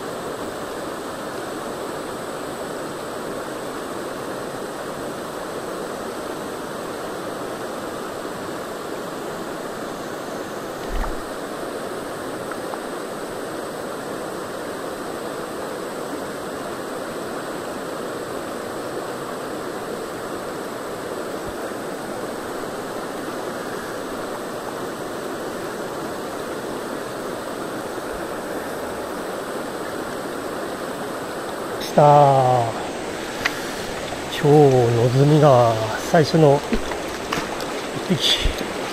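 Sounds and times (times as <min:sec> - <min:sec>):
river rushing over stones: 0:00.0 - 0:38.9
low thump: 0:10.8 - 0:11.3.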